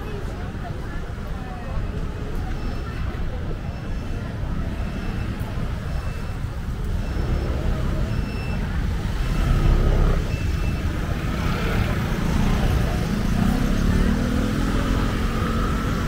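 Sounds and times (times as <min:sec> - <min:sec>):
faint voices: 0:00.0 - 0:16.0
passing cars and scooters: 0:00.0 - 0:16.0
faint high beep: 0:02.5 - 0:10.9.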